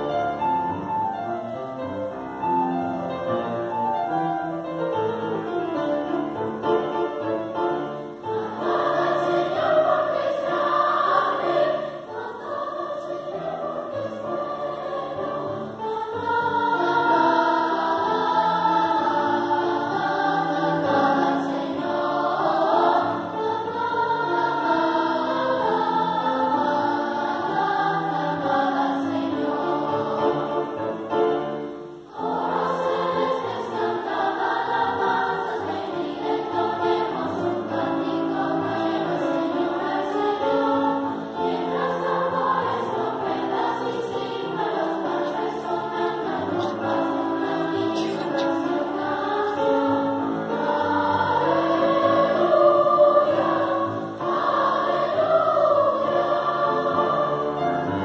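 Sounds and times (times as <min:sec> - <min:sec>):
children's choir singing: 0:00.0 - 0:58.0.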